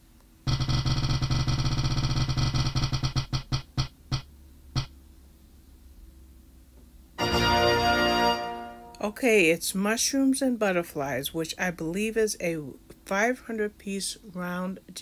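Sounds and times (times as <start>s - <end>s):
spinning wheel ticking: 0.5s - 4.9s
chiming musical tone: 7.2s - 9.0s.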